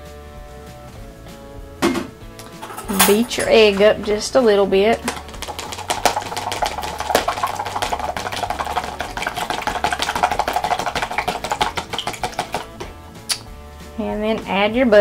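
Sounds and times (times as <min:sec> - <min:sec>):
fork beating egg in plastic container: 0:05.0 - 0:13.0.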